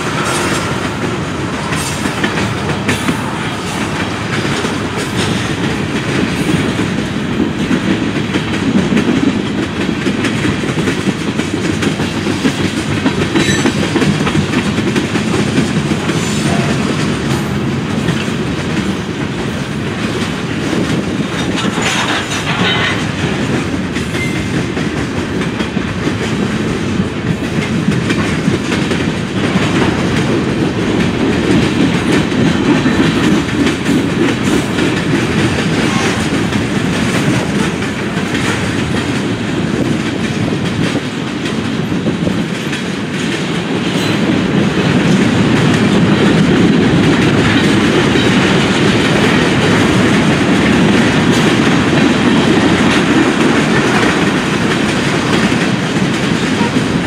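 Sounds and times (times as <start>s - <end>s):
train wheels rumbling on rail: 0.0s - 57.0s
wheels clicking over rail joints: 0.0s - 57.0s.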